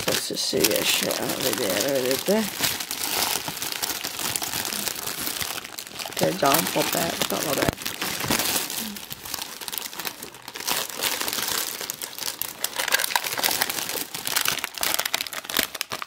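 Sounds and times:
foil crinkling: 0.0s - 16.0s
plastic bag crinkling: 0.0s - 16.0s.

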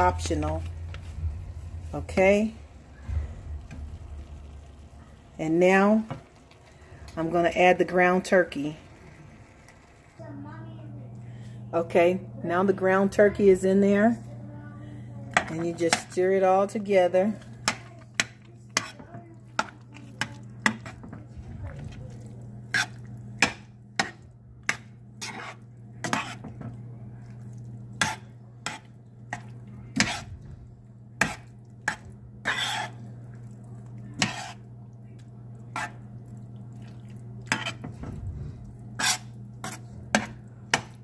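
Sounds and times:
steady low hum: 0.0s - 41.0s
metal spoon scraping pan: 15.4s - 21.2s, 22.6s - 26.6s, 28.0s - 29.4s, 30.0s - 30.4s, 31.2s - 33.1s, 34.2s - 34.6s, 37.5s - 38.0s, 38.9s - 40.9s.

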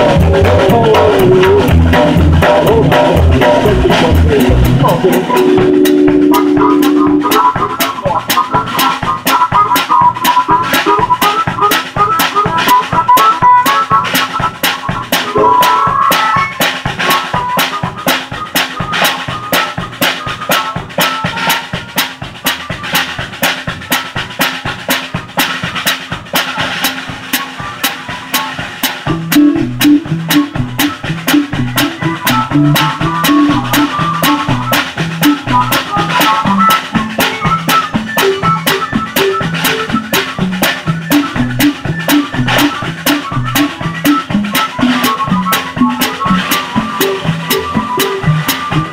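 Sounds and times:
low bass line: 0.0s - 9.2s, 29.1s - 48.9s
drum and cymbal hits: 0.0s - 48.9s
live band music: 0.0s - 48.9s.

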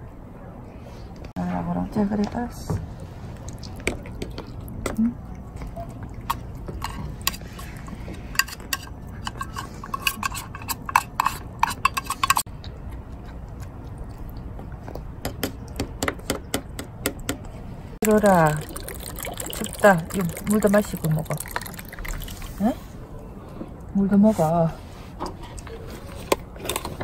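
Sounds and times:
cat chewing wet food: 3.2s - 8.1s.

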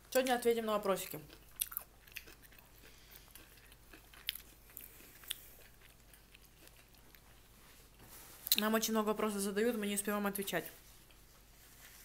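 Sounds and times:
chewing food: 0.1s - 8.7s.

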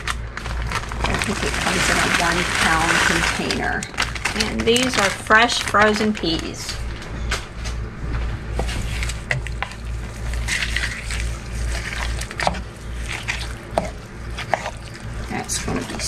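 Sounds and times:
steady low hum: 0.0s - 16.0s
spatula stirring thick mixture: 8.6s - 16.0s.

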